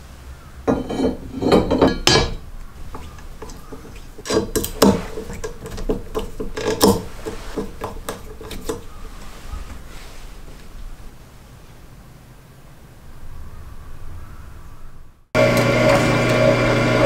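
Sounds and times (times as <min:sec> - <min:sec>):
metal plate clanking and scraping: 0:00.7 - 0:09.8.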